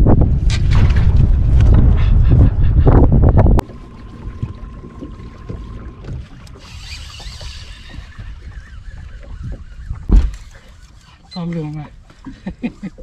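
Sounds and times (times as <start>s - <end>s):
wind: 0.0s - 13.0s
water against boat hull: 0.4s - 13.0s
heavy thump on boat: 10.0s - 10.4s.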